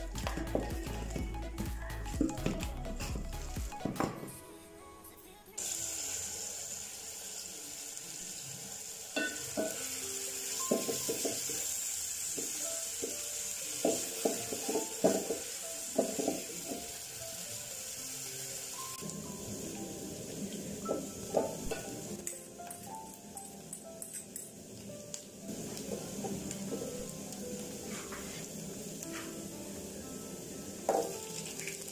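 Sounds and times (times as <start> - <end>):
onions sizzling in oil: 5.6 - 31.9
wooden spoon scraping a pot: 27.8 - 28.5.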